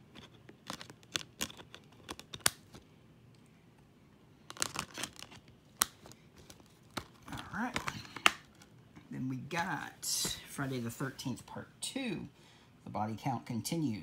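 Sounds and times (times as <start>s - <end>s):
plastic cases clicking and rattling: 0.1s - 2.8s.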